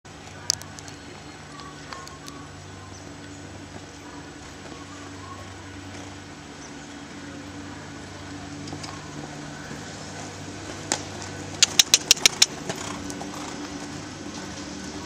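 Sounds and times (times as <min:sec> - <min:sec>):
steady low hum: 0:00.1 - 0:15.0.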